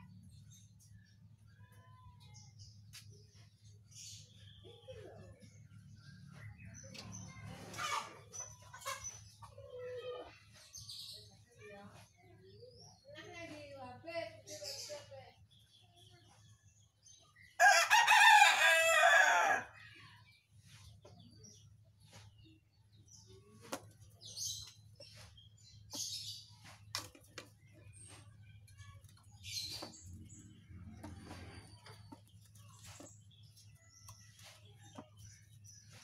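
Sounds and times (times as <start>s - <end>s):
loud crowing bird call: 17.6s - 19.8s.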